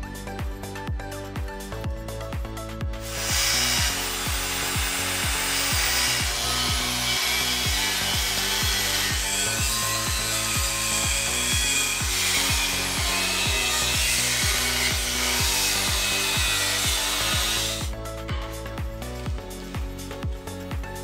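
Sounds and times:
background music with beat: 0.0 - 21.0
angle grinder cutting steel: 3.0 - 18.6.

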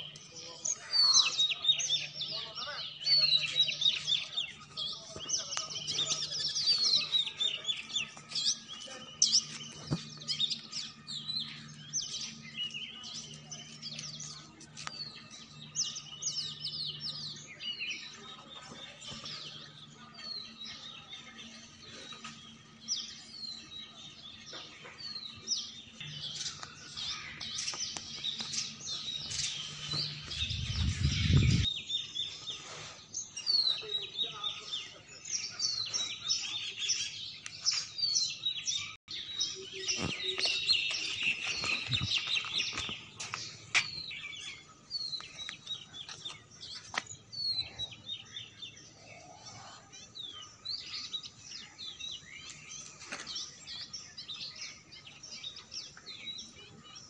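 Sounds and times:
small birds chirping: 0.0 - 57.0
low rumble: 30.2 - 31.7.

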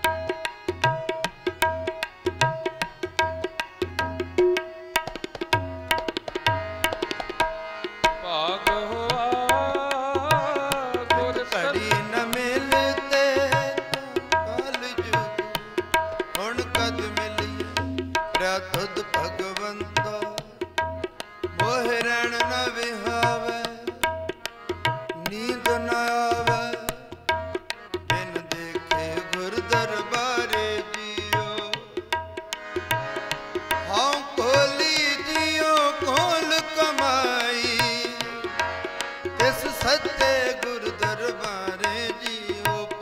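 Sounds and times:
harmonium held notes: 0.0 - 43.0
tabla playing: 0.0 - 43.0
person singing: 8.2 - 15.7, 16.3 - 17.8, 25.2 - 27.1, 39.4 - 43.0.

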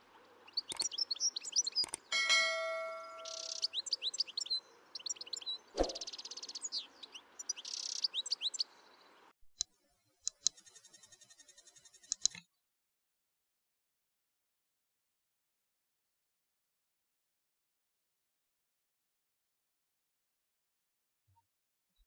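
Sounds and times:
goldfinch singing: 0.0 - 9.2
faint clicks: 0.6 - 2.1, 12.0 - 12.4
bell-like ding: 2.1 - 3.6.

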